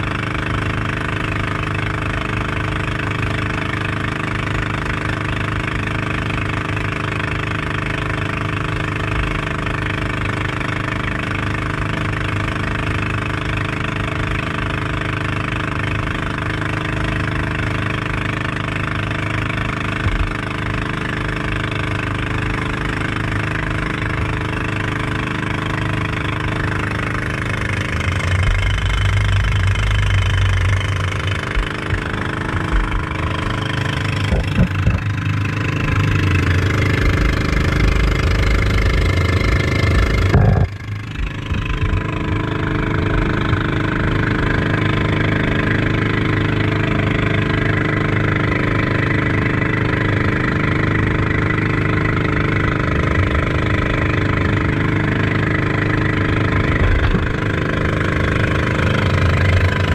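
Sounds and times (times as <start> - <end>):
boat engine running: 0.0 - 59.9
low rumble: 26.0 - 43.7.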